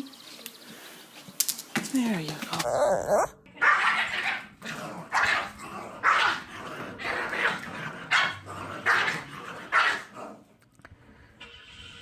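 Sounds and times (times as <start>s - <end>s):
small dog barking: 2.6s - 4.4s, 5.2s - 6.4s, 9.7s - 10.1s.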